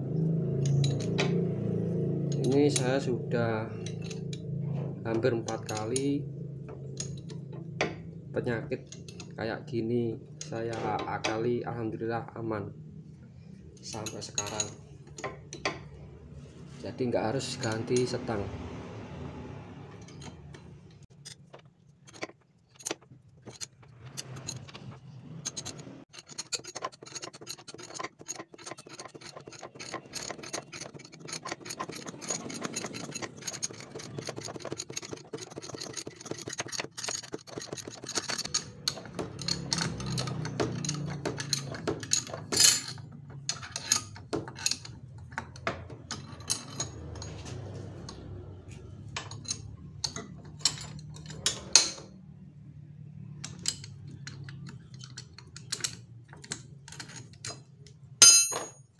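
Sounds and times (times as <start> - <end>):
metal tools clicking and scraping: 0.4 - 8.1, 8.7 - 9.4, 13.4 - 16.0, 19.8 - 52.2, 53.1 - 58.9.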